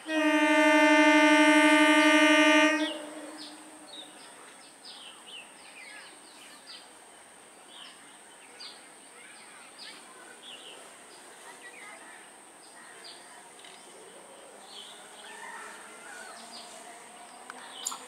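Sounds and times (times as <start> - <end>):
train horn: 0.0 - 4.3
birds chirping: 1.6 - 4.2.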